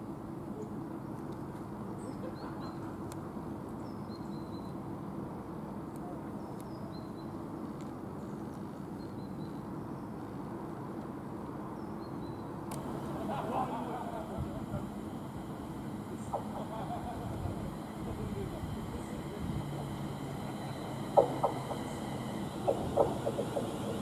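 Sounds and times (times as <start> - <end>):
low outdoor rumble: 12.7 - 24.0.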